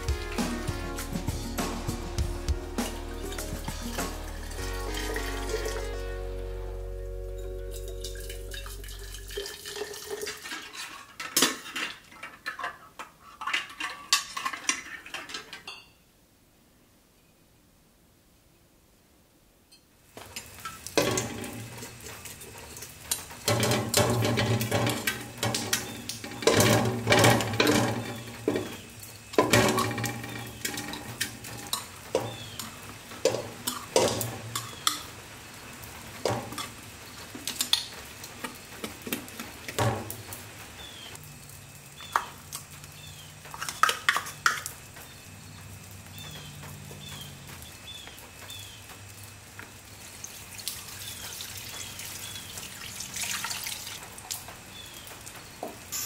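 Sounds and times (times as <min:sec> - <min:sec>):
water pouring into pot: 0:02.0 - 0:06.2, 0:07.7 - 0:12.6, 0:20.3 - 0:40.4, 0:49.4 - 0:54.9.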